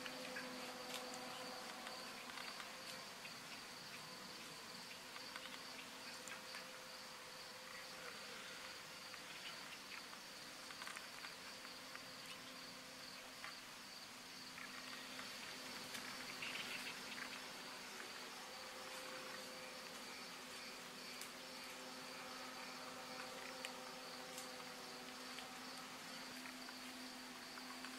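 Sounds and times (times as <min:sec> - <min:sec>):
crickets chirping: 0:00.0 - 0:27.9.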